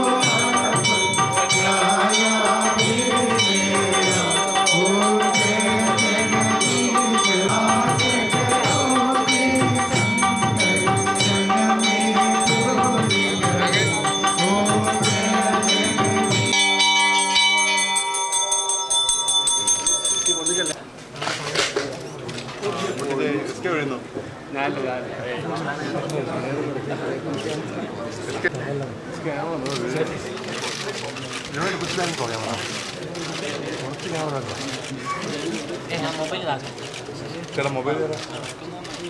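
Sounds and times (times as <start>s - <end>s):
person singing a chant: 0.0s - 17.8s
sustained ringing tones: 0.0s - 20.8s.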